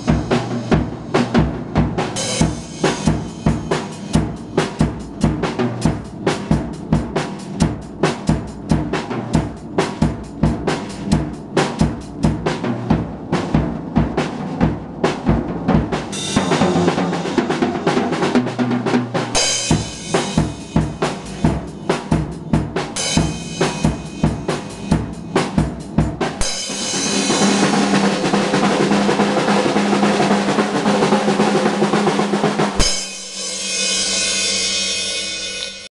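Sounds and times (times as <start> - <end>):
drum kit beat: 0.0 - 35.9
drum roll: 0.0 - 35.9
cymbal ringing: 2.2 - 5.2, 13.3 - 17.9, 19.4 - 25.6, 32.8 - 35.9.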